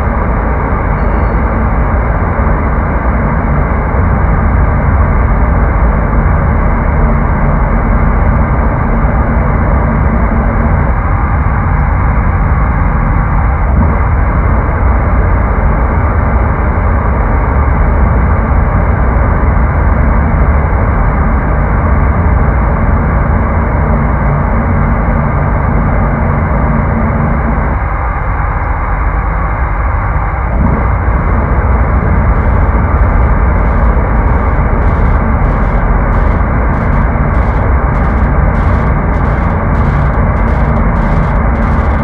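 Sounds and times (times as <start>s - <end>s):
low drone music: 30.3s - 42.0s.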